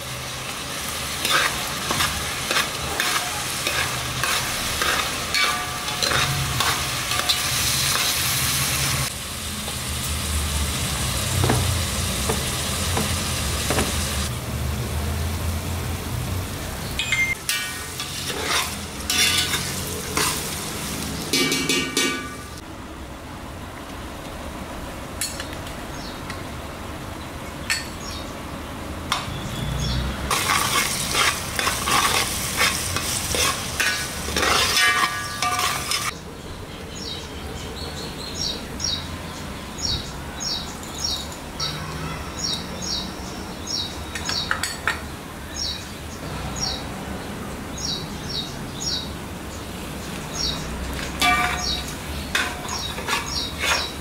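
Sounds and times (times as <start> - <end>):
food sizzling in a pot: 0.0 - 14.3, 15.0 - 22.6, 30.2 - 36.2, 50.8 - 54.0
steel spoon stirring: 1.2 - 8.3, 17.0 - 20.5, 30.3 - 36.1, 51.0 - 54.0.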